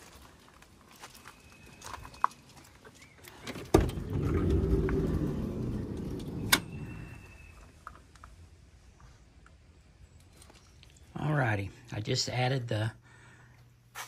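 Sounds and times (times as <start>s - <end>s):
door clunk: 3.5s - 7.1s
sliding door rumbling open: 3.7s - 7.4s.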